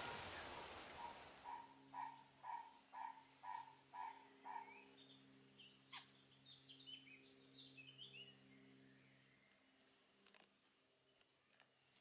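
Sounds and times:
faint low hum: 0.0 - 12.0
bird calls and chirps: 0.3 - 9.6.

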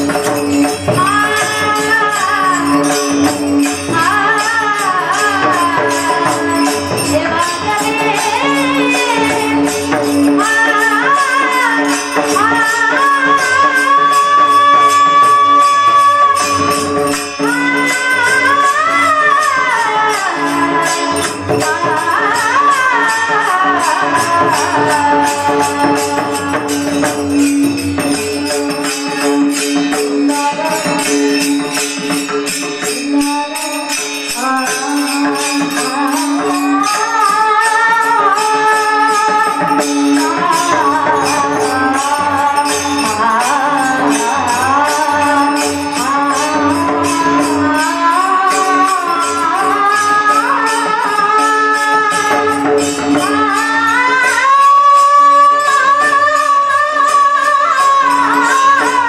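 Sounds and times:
hand cymbals clinking: 0.0 - 59.0.

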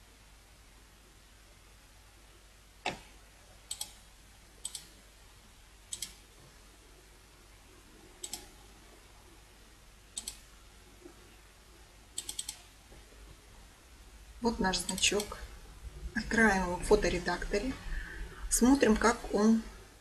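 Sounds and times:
computer mouse clicking: 3.7 - 4.0, 4.6 - 5.0, 5.9 - 6.2, 8.2 - 8.6, 10.2 - 10.5, 12.2 - 12.7, 14.8 - 15.3.

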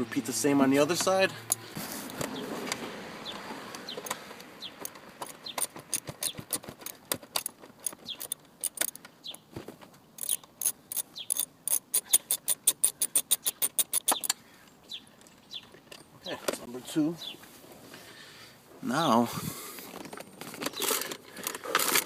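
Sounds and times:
socket ratchet clicking: 3.8 - 9.4, 10.2 - 14.4.

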